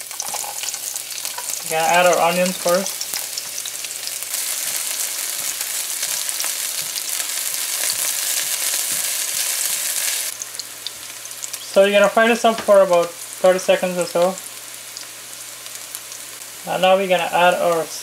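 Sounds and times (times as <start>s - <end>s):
onions sizzling in hot oil: 0.0s - 18.0s
spatula stirring in a pan: 0.1s - 10.2s.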